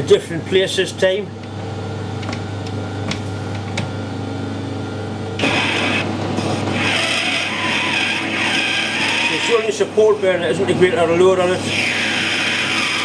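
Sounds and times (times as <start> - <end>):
lathe motor hum: 5.4 - 13.0
tool scraping cutting brass: 6.7 - 9.9.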